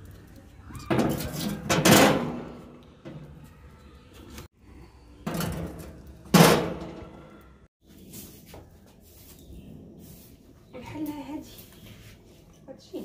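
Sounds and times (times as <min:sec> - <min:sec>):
metal grill basket knocks and clanks: 0:00.9 - 0:03.2, 0:05.2 - 0:07.2.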